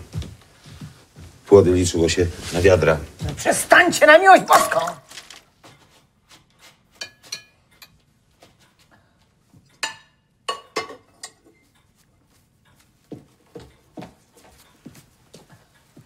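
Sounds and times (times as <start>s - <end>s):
cutlery and china clinking: 6.9s - 8.1s, 9.7s - 12.1s.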